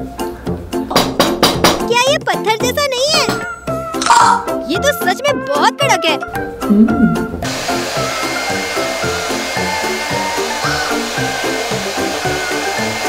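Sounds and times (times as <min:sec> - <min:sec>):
hair dryer blowing: 0:07.4 - 0:13.0.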